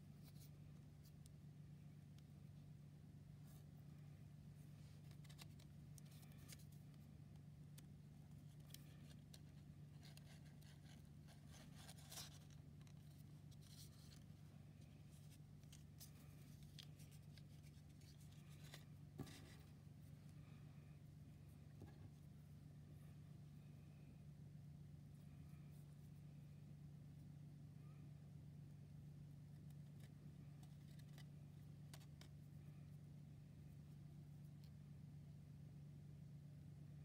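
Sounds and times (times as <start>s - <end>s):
steady low hum: 0.0s - 37.0s
paper and string rustling: 4.6s - 19.8s.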